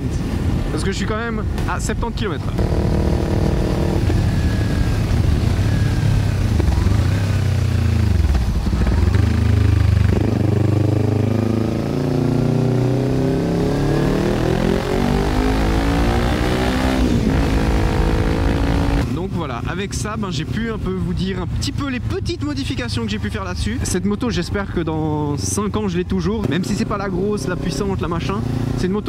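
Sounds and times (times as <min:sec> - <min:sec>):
motorcycle engine running loud: 0:02.6 - 0:19.4.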